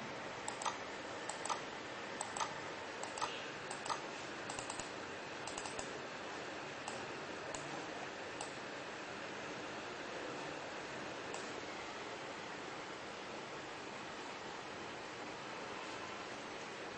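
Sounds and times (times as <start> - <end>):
computer mouse button clicks: 0.5 - 1.6, 2.2 - 4.9.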